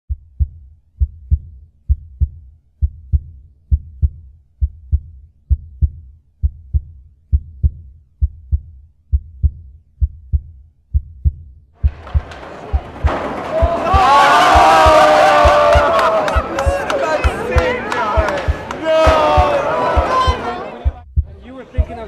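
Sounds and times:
heartbeat double thump: 0.1 - 13.8, 18.2 - 22.0.

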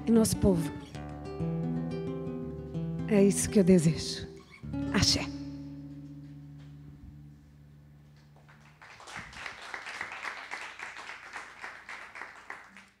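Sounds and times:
acoustic guitar chord ringing: 0.0 - 8.2
audience applause: 8.5 - 13.0.

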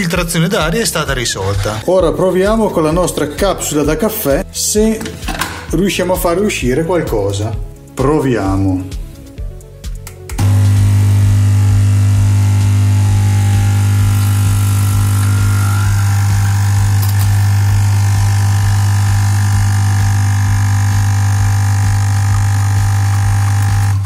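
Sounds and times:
coffee running: 10.4 - 24.0
espresso machine pump buzzing: 10.4 - 24.0.

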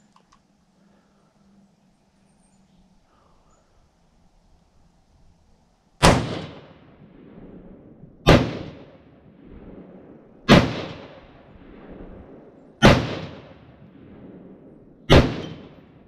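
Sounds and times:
rifle shots with echo: 6.0 - 16.0.

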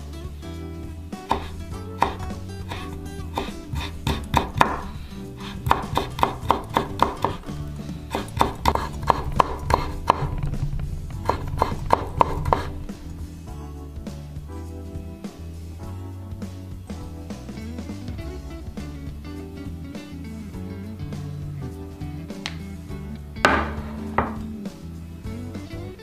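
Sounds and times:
background music: 0.0 - 26.0
knife chopping on wooden board: 1.3 - 7.5, 8.1 - 10.5, 11.2 - 12.8, 23.5 - 24.5.

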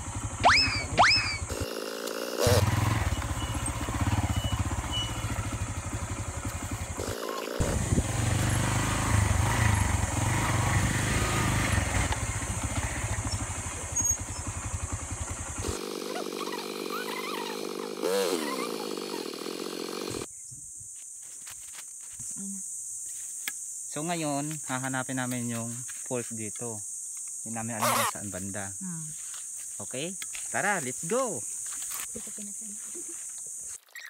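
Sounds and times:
motorcycle engine running: 0.0 - 20.3
short chirps: 3.0 - 5.6.

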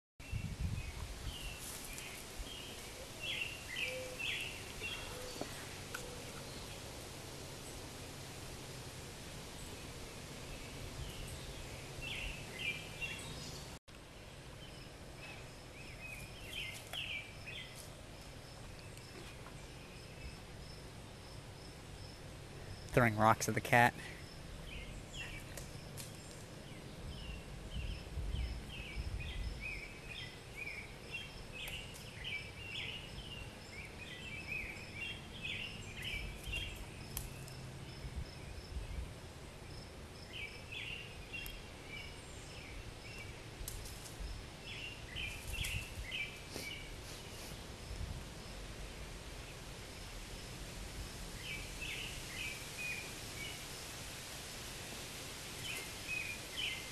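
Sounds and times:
small birds chirping: 0.2 - 7.0, 9.5 - 39.1, 39.7 - 48.7, 55.5 - 56.9
faint high insect drone: 14.6 - 23.0.

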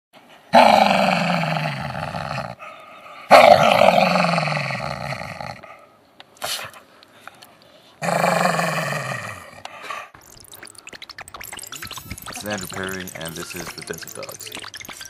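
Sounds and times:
animal roaring: 0.5 - 2.6, 3.3 - 5.7, 8.0 - 9.6.

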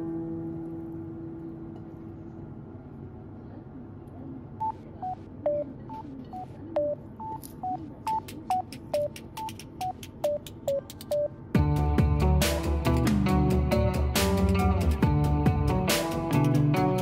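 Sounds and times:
light background melody: 9.0 - 17.0.

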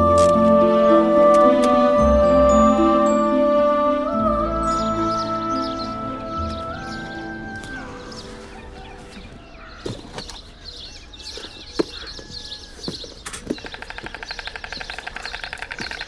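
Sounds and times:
small birds chirping: 4.6 - 16.0.

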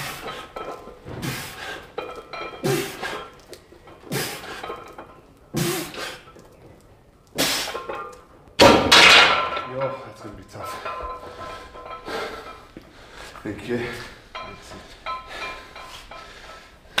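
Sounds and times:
forceful hissing breaths: 7.4 - 7.8.

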